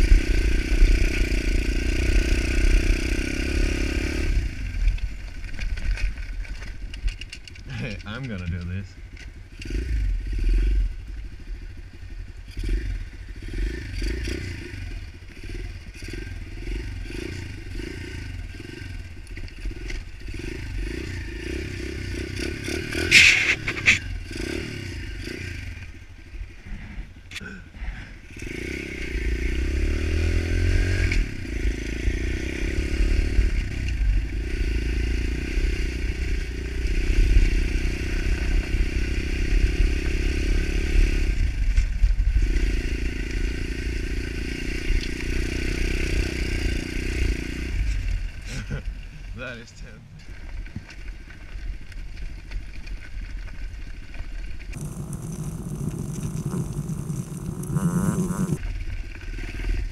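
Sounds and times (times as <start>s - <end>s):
motorbike engine rumbling: 22.5s - 24.5s, 54.7s - 58.6s
sharp clatter: 23.0s - 24.1s.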